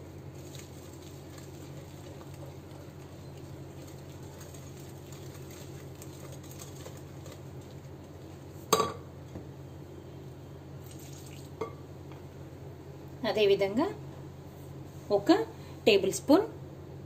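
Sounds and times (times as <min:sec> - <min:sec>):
whisk stirring batter: 0:00.3 - 0:08.2.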